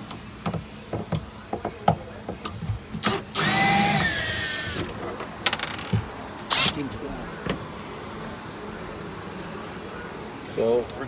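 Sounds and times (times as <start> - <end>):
drill motor whining: 3.1 - 4.9.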